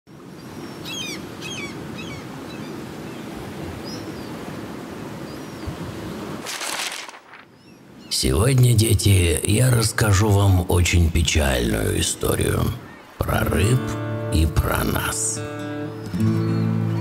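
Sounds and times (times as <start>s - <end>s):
rush of surf: 0.2s - 8.0s
waves washing: 0.2s - 8.2s, 8.8s - 15.6s
falling bird calls: 0.3s - 8.9s, 11.7s - 13.4s.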